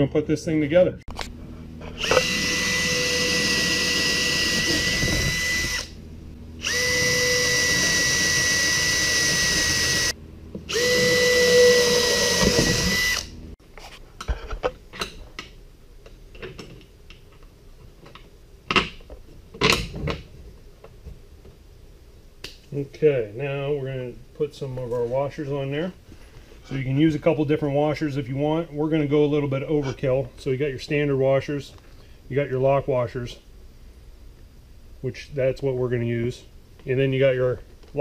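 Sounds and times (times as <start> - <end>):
cordless drill boring into wood: 2.0 - 5.9, 6.6 - 13.3.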